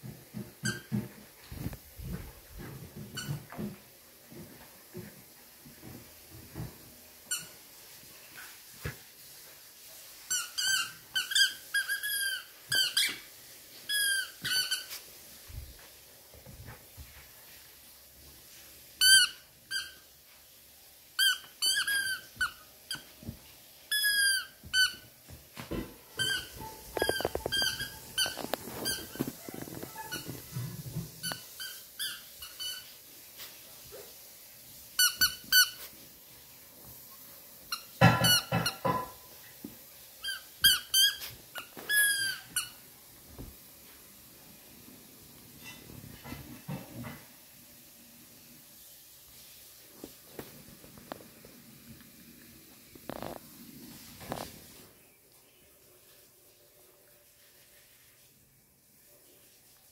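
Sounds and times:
squeaky toy squeaks: 0:10.3 - 0:13.2, 0:13.9 - 0:14.9, 0:21.2 - 0:23.0, 0:23.9 - 0:25.0, 0:26.2 - 0:30.4, 0:31.2 - 0:32.9, 0:35.0 - 0:35.8, 0:37.7 - 0:39.0, 0:40.2 - 0:42.8
rustling: 0:21.1 - 0:38.0.

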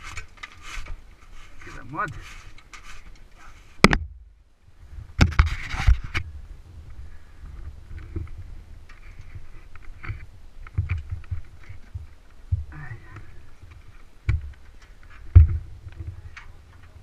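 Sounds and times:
wind rumbling on microphone: 0:00.0 - 0:17.0
chassis knocks and rattles: 0:14.3 - 0:17.0.

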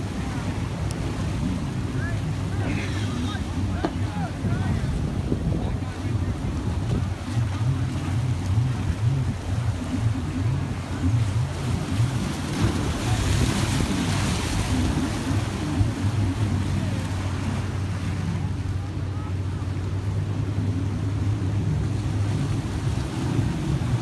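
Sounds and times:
wind buffeting microphone: 0:00.0 - 0:18.5
surf washing against rocks: 0:00.0 - 0:24.0.

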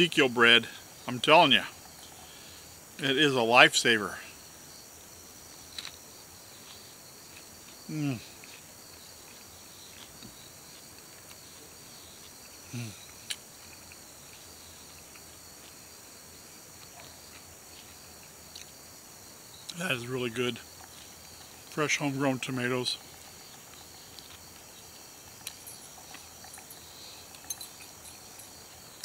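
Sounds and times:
high-pitched insect chorus: 0:00.0 - 0:29.0
man humming while eating: 0:07.9 - 0:08.4, 0:12.7 - 0:13.1.

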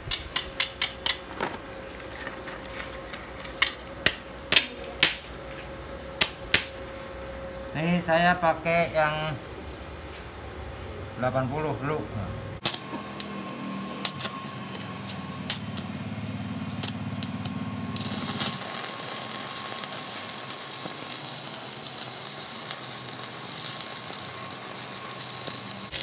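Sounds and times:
welding arc crackling and buzzing: 0:12.6 - 0:26.0.

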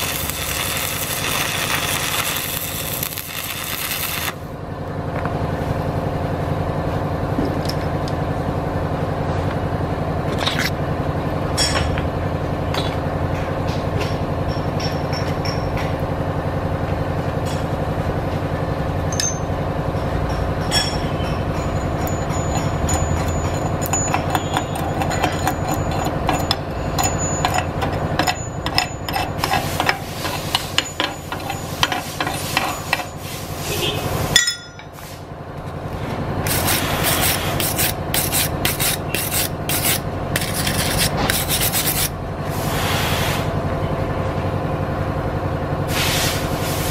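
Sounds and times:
wire brush scraping steel: 0:00.0 - 0:04.4, 0:23.3 - 0:33.9, 0:36.5 - 0:42.8
steady hum: 0:00.0 - 0:13.4, 0:16.4 - 0:42.8.

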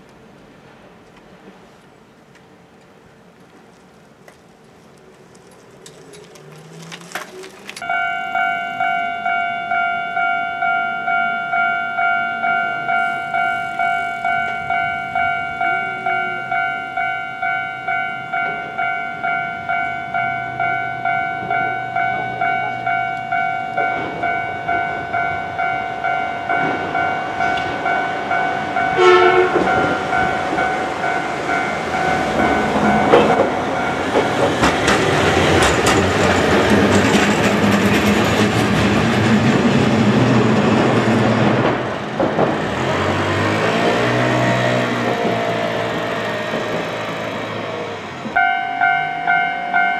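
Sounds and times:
tram running noise: 0:00.0 - 0:49.9
wheel clatter on rails: 0:03.7 - 0:08.0, 0:17.9 - 0:48.4
level crossing bell ringing: 0:07.8 - 0:34.6, 0:48.4 - 0:49.9
tram horn blast: 0:07.8 - 0:36.0.

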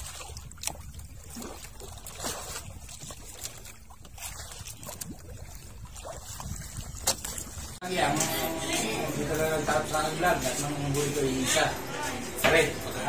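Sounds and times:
clicks and knocks against hull: 0:07.0 - 0:07.5.

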